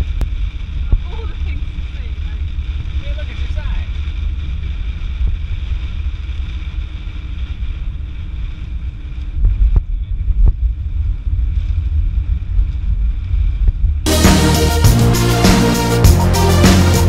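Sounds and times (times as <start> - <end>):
heavy rain: 0.0 - 7.2, 14.1 - 17.0
road and wind rumble in car: 0.0 - 14.1.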